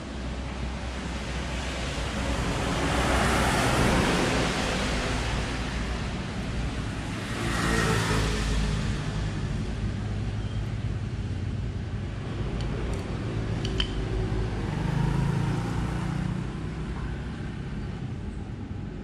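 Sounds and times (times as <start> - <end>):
metallic clicks of hand tools: 12.6 - 14.0.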